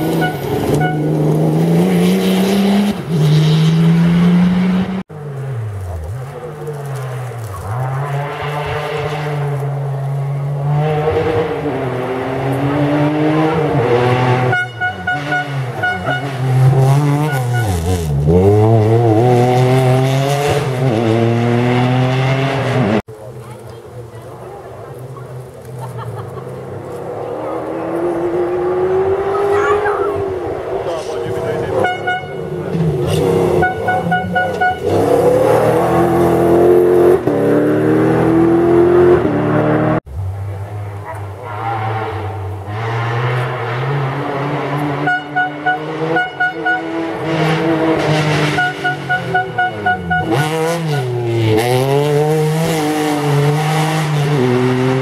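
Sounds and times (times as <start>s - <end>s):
short horn toots: 0.0s - 1.1s, 14.4s - 16.4s, 17.1s - 18.1s, 31.8s - 32.5s, 33.6s - 35.0s, 48.5s - 51.2s
truck engine at high revs: 0.0s - 23.1s, 26.8s - 55.0s.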